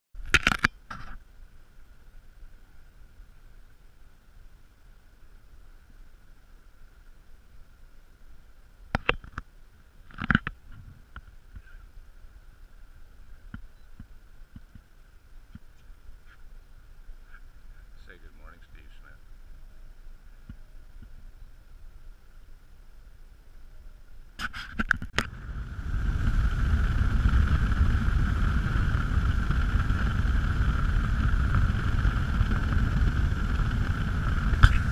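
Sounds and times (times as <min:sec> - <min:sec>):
faint steady hum: 0:00.2 - 0:34.9
wind: 0:00.2 - 0:34.9
motorboat engine: 0:25.2 - 0:34.9.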